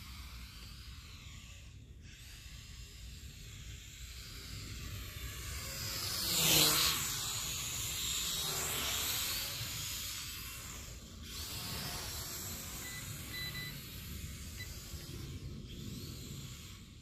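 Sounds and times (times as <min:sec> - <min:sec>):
faint short high beeps: 0:12.8 - 0:13.8.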